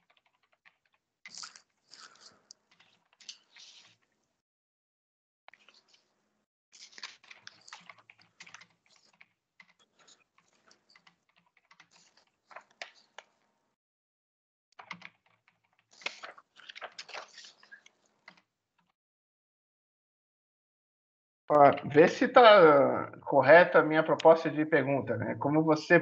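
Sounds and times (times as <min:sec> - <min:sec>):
typing on computer keyboard: 0:00.0 - 0:03.9, 0:06.9 - 0:13.1, 0:14.8 - 0:17.4, 0:18.2 - 0:18.4.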